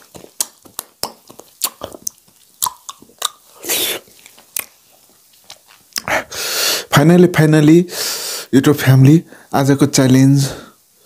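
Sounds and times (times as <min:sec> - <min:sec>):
fingers being licked: 0:00.0 - 0:03.6
wet chewing smacks: 0:00.0 - 0:06.1.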